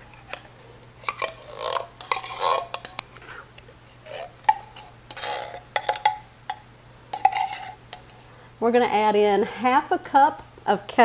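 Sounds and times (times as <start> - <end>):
can clicking: 1.0 - 3.1, 4.4 - 8.1.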